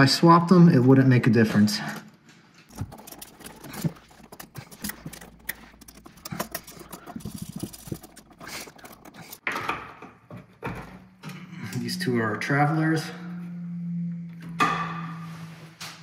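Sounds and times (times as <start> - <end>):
metallic clicks and rattles of tools: 2.7 - 9.4
screwdriver turning a screw: 2.7 - 9.4.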